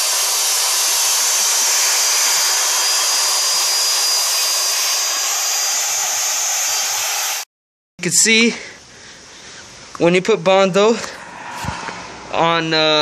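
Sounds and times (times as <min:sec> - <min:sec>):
electric drill grinding metal: 0:00.0 - 0:07.4.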